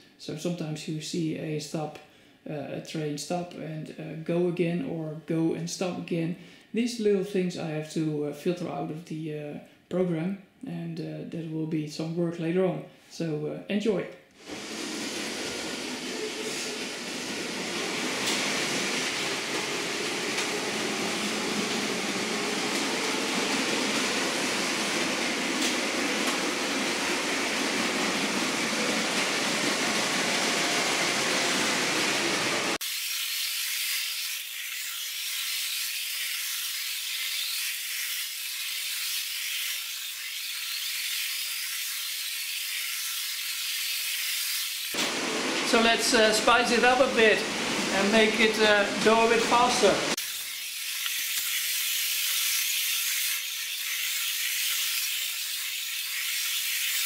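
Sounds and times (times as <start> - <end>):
toy trains whirring and rattling: 14.4 - 45.2, 49.7 - 57.0.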